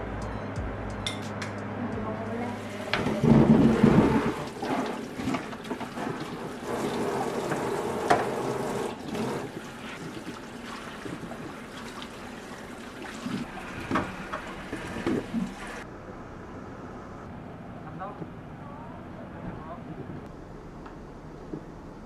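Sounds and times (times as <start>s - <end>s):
tap water splashing in sink: 2.9s - 15.6s.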